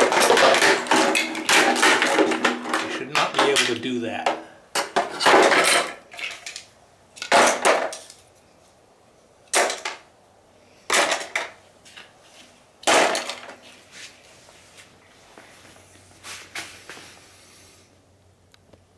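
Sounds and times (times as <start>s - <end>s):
plastic pieces clattering into bucket: 0.0s - 3.9s, 4.8s - 8.1s.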